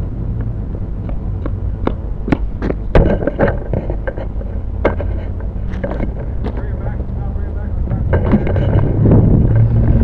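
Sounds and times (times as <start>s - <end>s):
steady low rumble: 0.0s - 10.0s
sharp knocks and clicks: 0.4s - 6.7s, 7.9s - 8.9s.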